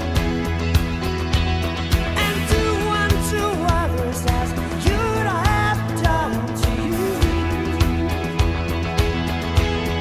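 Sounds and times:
pop song with singing: 1.9s - 9.3s.

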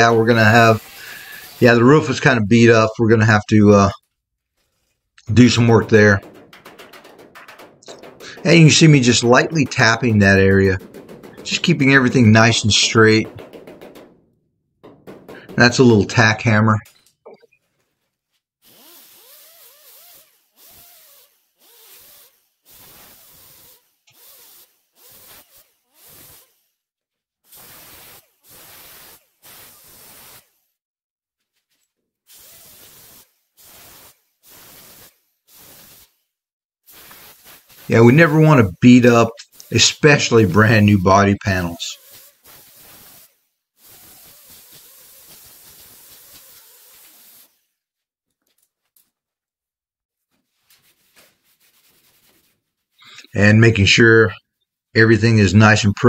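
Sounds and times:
air grinder grinding metal: 0.0s - 2.3s, 5.2s - 16.3s, 18.6s - 26.6s, 37.0s - 47.6s
pneumatic die grinder grinding metal: 0.3s - 2.1s.

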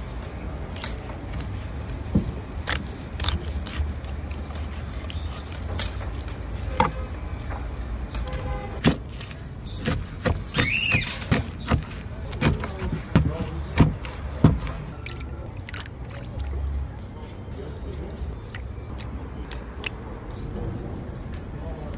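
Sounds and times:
knife chopping fish on board: 8.8s - 14.9s.

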